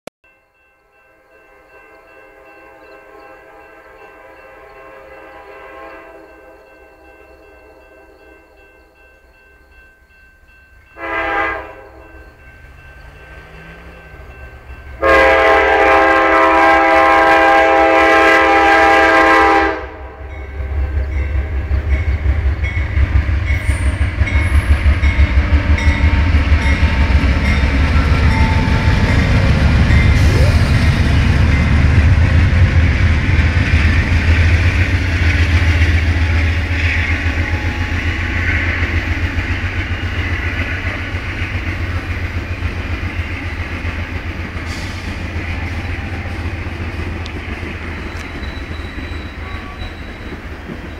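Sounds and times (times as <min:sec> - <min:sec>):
train rumbling past: 0:00.3 - 0:50.9
locomotive air horn: 0:04.8 - 0:06.4, 0:11.0 - 0:12.2, 0:15.0 - 0:20.2.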